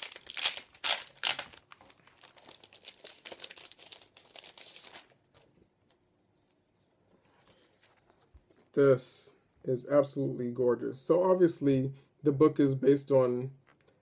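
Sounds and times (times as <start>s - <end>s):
paper packaging rustling: 0.0s - 5.7s.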